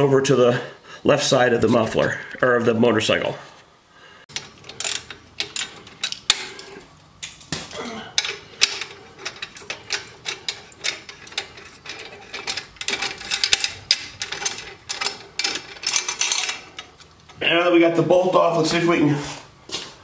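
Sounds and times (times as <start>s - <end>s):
metal clinks and rattles: 4.3s - 17.4s.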